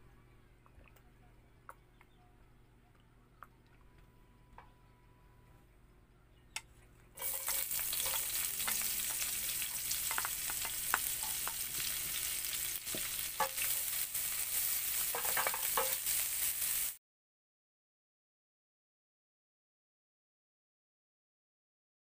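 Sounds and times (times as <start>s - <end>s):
wooden spatula scraping pan: 7.2s - 12.3s
onions sizzling in hot oil: 7.2s - 17.0s.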